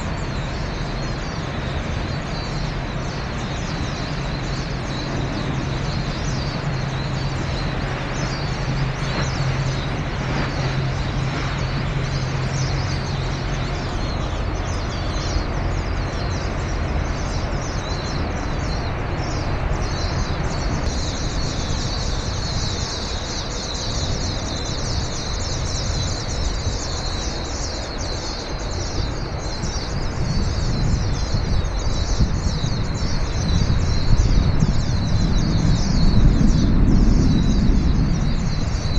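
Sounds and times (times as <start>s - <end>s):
low engine hum: 0.0s - 38.9s
small birds chirping: 0.0s - 38.9s
low rumble: 29.3s - 38.9s.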